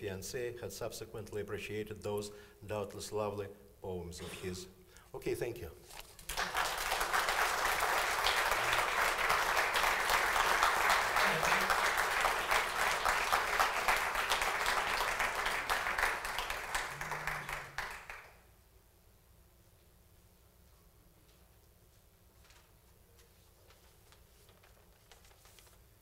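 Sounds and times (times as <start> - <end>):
audience applauding: 6.3 - 18.4.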